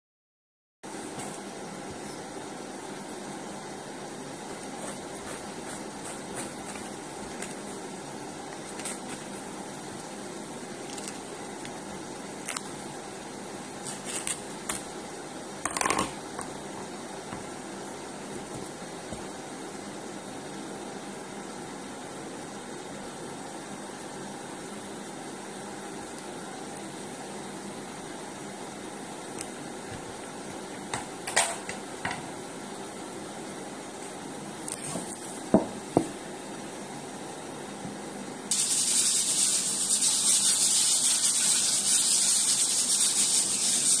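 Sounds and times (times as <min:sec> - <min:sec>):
steady hiss: 0:38.5 - 0:44.0.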